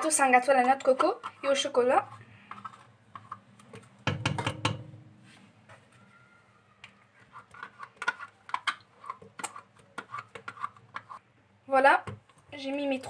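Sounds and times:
spoon scraping plastic pot: 0:00.0 - 0:04.8, 0:07.0 - 0:11.2
spoon clattering against metal bowl: 0:04.1 - 0:05.0.

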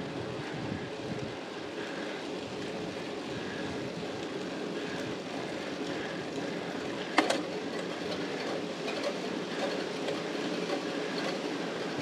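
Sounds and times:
bike tyres and drivetrain: 0:00.0 - 0:12.0.

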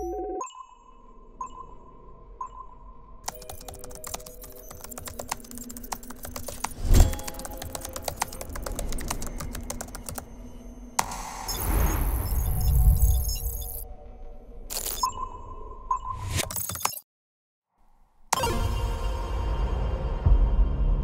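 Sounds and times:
fast keyboard typing: 0:03.2 - 0:10.3, 0:16.4 - 0:17.0.

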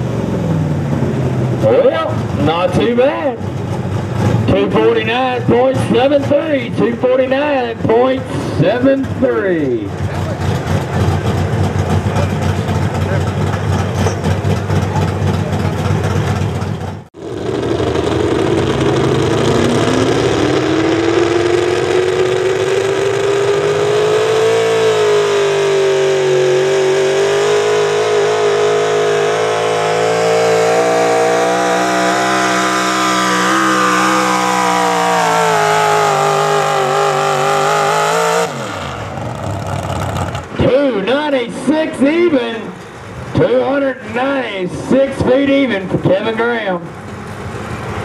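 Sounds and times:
truck engine at full throttle: 0:00.0 - 0:48.0.

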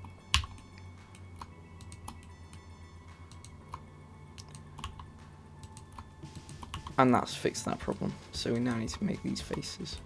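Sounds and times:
keyboard and mouse clicks: 0:00.0 - 0:02.3, 0:03.3 - 0:03.8, 0:04.4 - 0:07.0.

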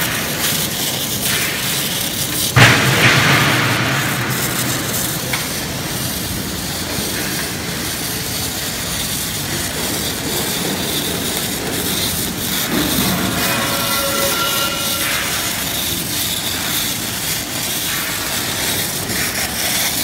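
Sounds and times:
welding arc hiss: 0:00.0 - 0:20.0
steady machine tones: 0:02.2 - 0:17.3.

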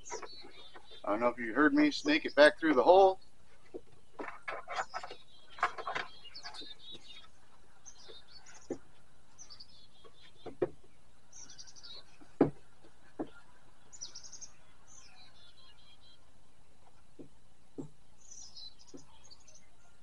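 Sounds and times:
birds chirping: 0:00.0 - 0:20.0
sharp knocks and clicks: 0:03.7 - 0:07.2, 0:10.0 - 0:10.9.

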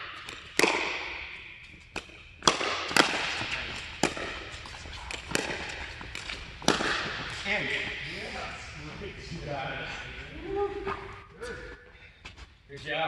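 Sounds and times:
paddles hitting plastic ball: 0:00.0 - 0:07.5.

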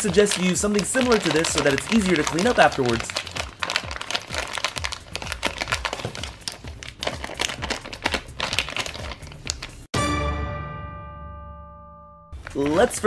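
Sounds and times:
plastic bag crinkling: 0:00.0 - 0:09.9
ringing music chord: 0:10.0 - 0:12.4.

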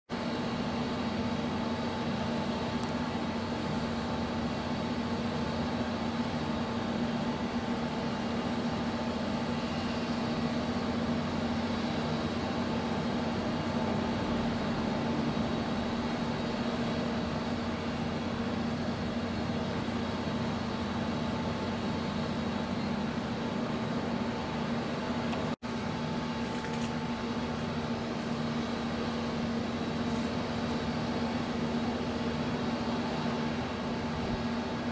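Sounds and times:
steady mechanical hum: 0:00.1 - 0:34.9.

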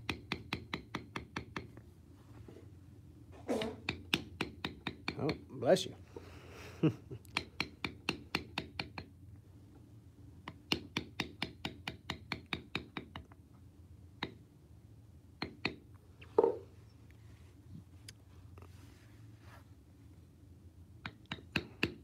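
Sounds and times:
mallet tapping stamp into leather: 0:00.0 - 0:01.8, 0:03.8 - 0:05.4, 0:07.3 - 0:09.1, 0:10.4 - 0:13.3.

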